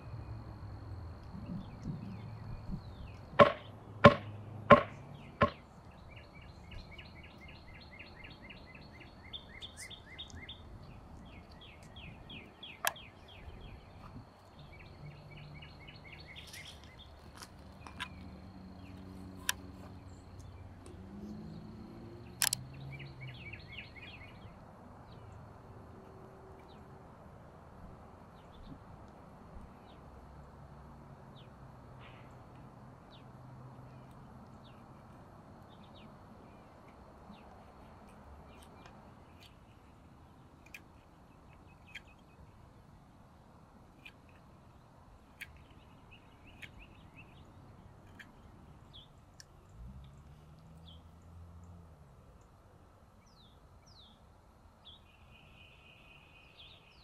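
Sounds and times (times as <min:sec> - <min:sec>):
faint clicks: 0:22.3 - 0:22.7.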